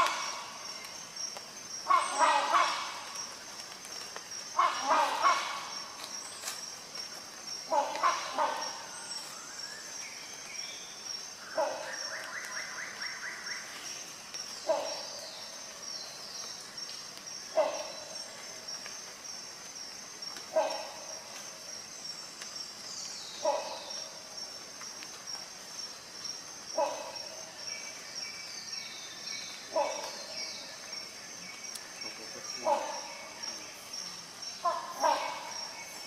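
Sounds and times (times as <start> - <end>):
hornbill calling: 1.8 - 3.3, 4.5 - 6.4, 7.7 - 9.4, 34.6 - 36.0.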